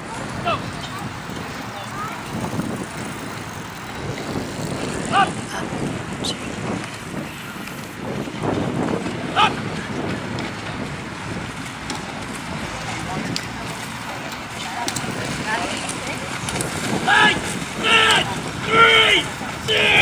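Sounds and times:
wind and water rumble: 0:00.0 - 0:20.0
loud shouted calls: 0:05.0 - 0:05.6, 0:09.3 - 0:09.6, 0:16.9 - 0:20.0.

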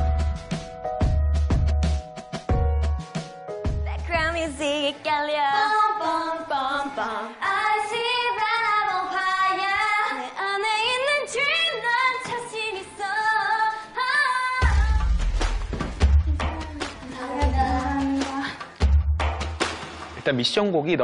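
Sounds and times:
young women singing pop song: 0:04.0 - 0:18.6
heavy bass beat: 0:14.6 - 0:19.8.

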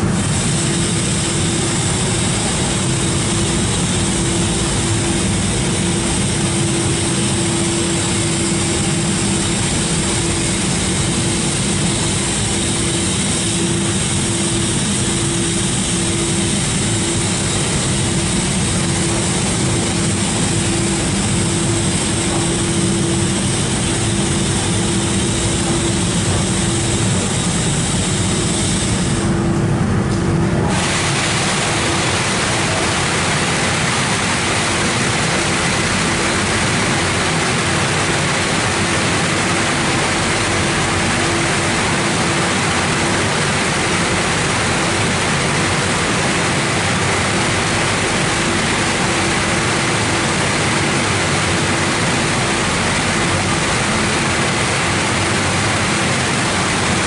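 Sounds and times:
car wash rushing water: 0:00.0 - 0:29.4, 0:30.6 - 0:57.0
steady machine hum: 0:00.0 - 0:57.0.

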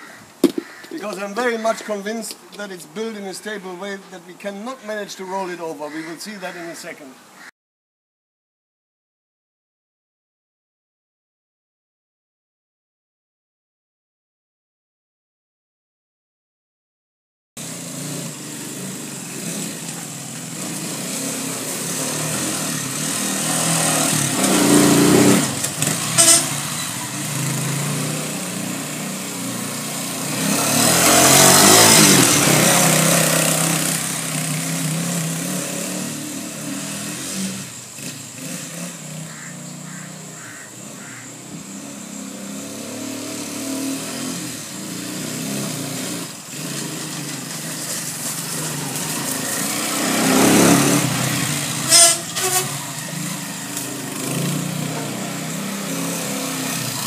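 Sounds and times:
sharp knocks: 0:00.4 - 0:01.2
motorcycle engine running: 0:17.6 - 0:42.7, 0:46.8 - 0:57.0.

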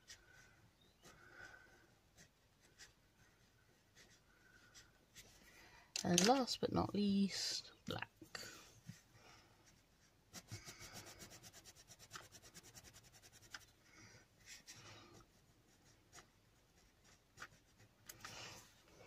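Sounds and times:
pencil scratching on paper: 0:00.0 - 0:05.4, 0:09.7 - 0:13.8, 0:14.4 - 0:18.0.

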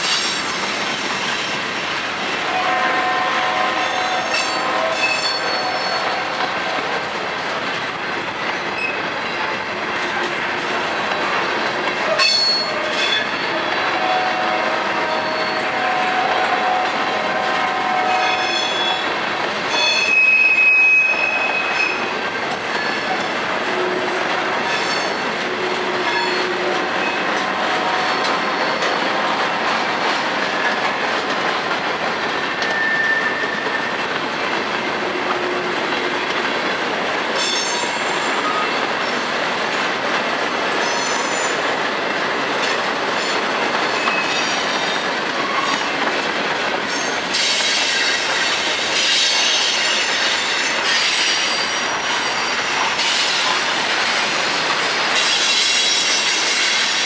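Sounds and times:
freight train wheels clattering: 0:00.0 - 0:57.0.

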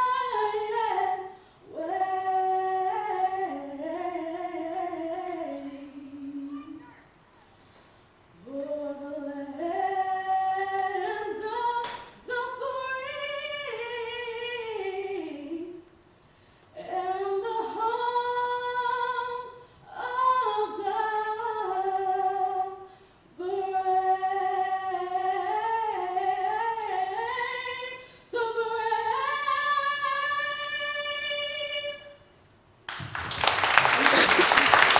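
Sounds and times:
woman singing: 0:00.0 - 0:06.8, 0:08.4 - 0:15.9, 0:16.8 - 0:32.2
applause: 0:32.9 - 0:34.9.

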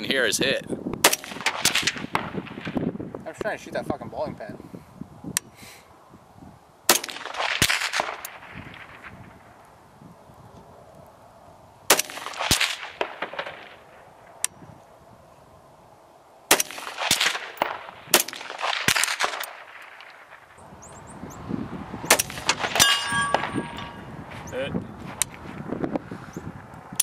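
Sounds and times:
rifle shots with echo: 0:01.0 - 0:02.8, 0:06.9 - 0:09.4, 0:11.9 - 0:14.0, 0:16.5 - 0:20.6, 0:22.1 - 0:24.0.

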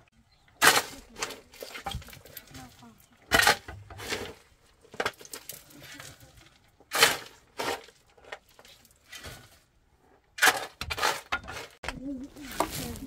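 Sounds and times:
hoe chopping stony earth: 0:00.6 - 0:02.1, 0:03.3 - 0:04.4, 0:06.9 - 0:07.9.

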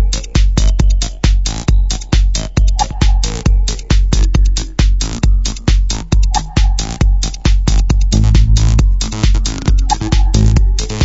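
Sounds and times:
electro track with drum-machine beat: 0:00.0 - 0:11.0.

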